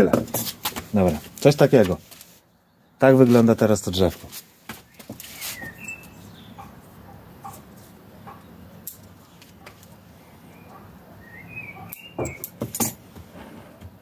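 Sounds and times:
bird chirping: 2.4 - 3.2, 4.8 - 7.6, 10.1 - 12.6.

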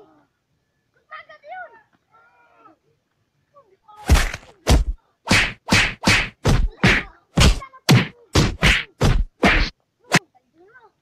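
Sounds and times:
punches landing: 4.0 - 10.2.

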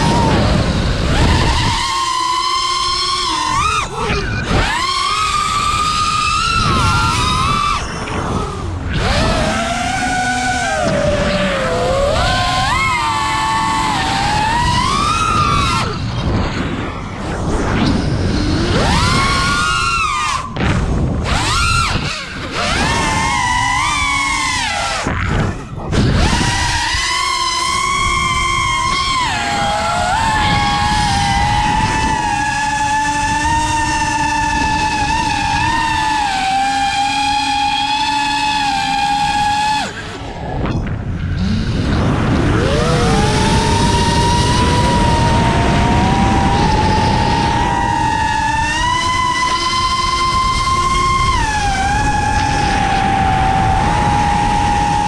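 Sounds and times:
drone motors whining: 0.0 - 55.0
wind rush on microphone: 0.0 - 55.0
rush of air: 40.1 - 48.9.

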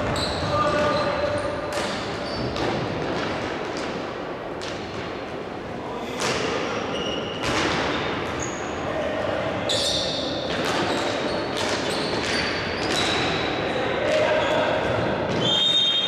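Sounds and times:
shoes squeaking on court floor: 0.0 - 2.9, 6.8 - 8.7, 9.7 - 13.5.

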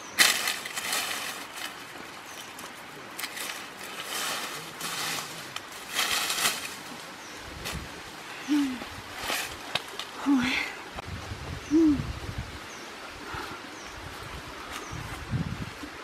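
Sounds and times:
dry leaves rustling: 0.0 - 10.6.

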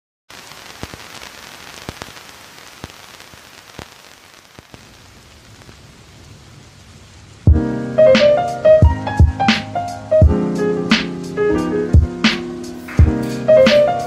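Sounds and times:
sharp clicks and crackles: 0.3 - 5.8
steady hiss: 0.3 - 14.0.

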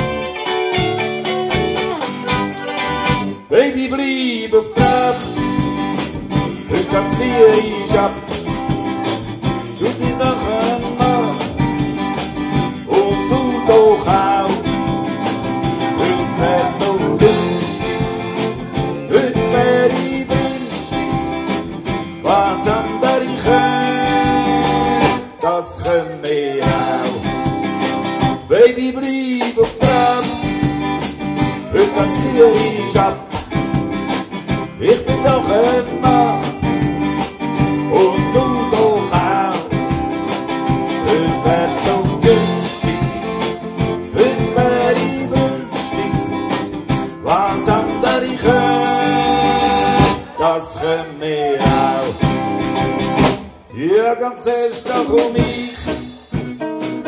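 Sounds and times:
button accordion: 0.0 - 3.5
tuba bass: 0.0 - 3.6, 4.5 - 28.9, 29.6 - 50.6, 51.6 - 54.0
drums: 0.0 - 57.0
strummed acoustic guitars: 0.0 - 57.0.

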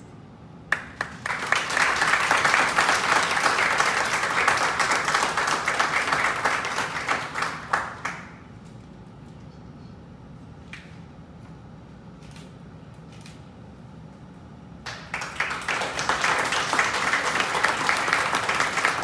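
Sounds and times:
audience applauding: 0.7 - 8.3, 14.9 - 19.0
single hand clap: 0.7 - 8.4, 14.8 - 19.0.

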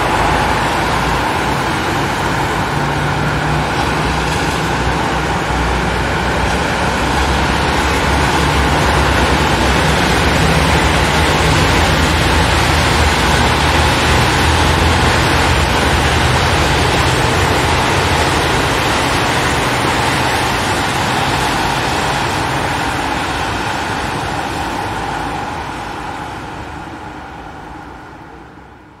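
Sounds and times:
road traffic: 0.0 - 29.0.

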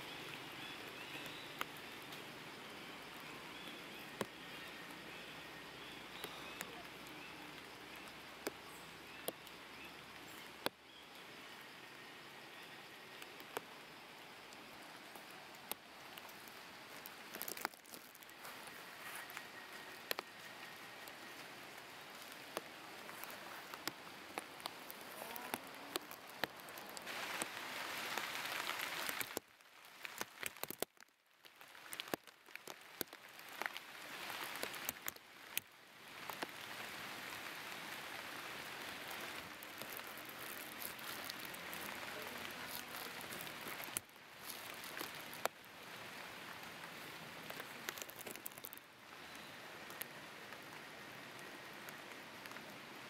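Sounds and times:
crackling hiss: 0.0 - 53.0.

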